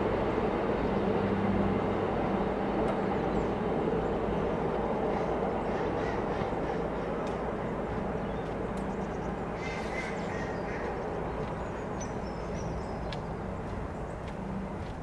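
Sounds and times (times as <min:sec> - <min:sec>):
train low rumble: 0:00.0 - 0:15.0
birds calling: 0:03.0 - 0:15.0.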